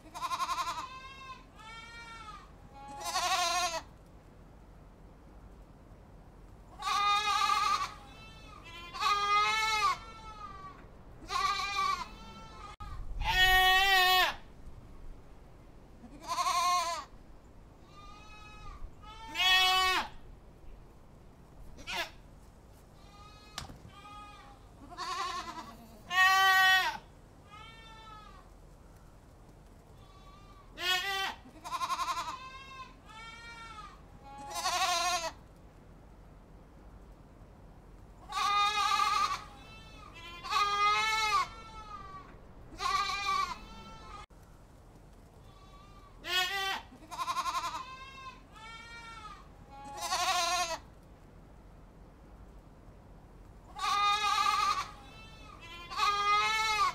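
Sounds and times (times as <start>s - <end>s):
goats bleating: 0.0s - 3.9s, 6.8s - 14.4s, 16.0s - 17.1s, 17.9s - 20.2s, 23.0s - 28.4s, 30.0s - 35.4s, 38.3s - 44.3s, 45.4s - 50.8s, 53.7s - 56.9s.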